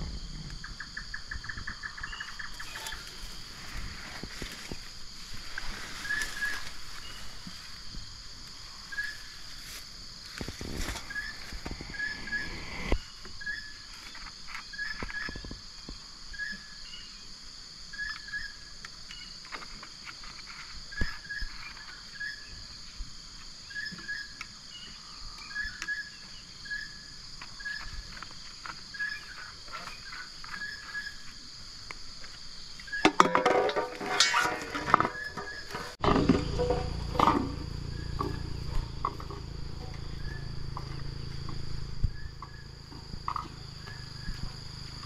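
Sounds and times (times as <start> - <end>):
burst of noise: 0.0 - 0.8
high insect drone: 0.0 - 45.0
short insect chirp: 0.0 - 45.0.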